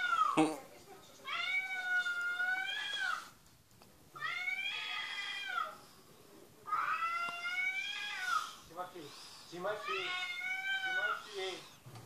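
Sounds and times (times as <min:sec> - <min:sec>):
cat meowing: 0:01.2 - 0:03.3, 0:04.2 - 0:05.8, 0:06.7 - 0:08.6, 0:09.8 - 0:11.4.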